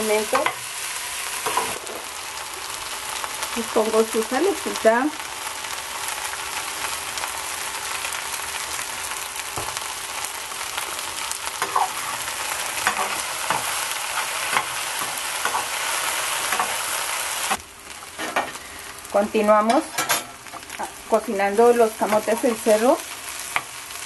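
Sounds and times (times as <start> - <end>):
food sizzling in a skillet: 0.0 - 24.0
spatula scraping a pan: 11.6 - 16.9, 18.2 - 18.6.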